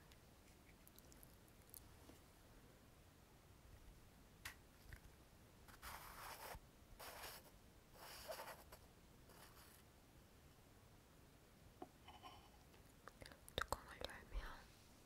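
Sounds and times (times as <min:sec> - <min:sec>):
scratchy rustling: 0:05.7 - 0:09.8.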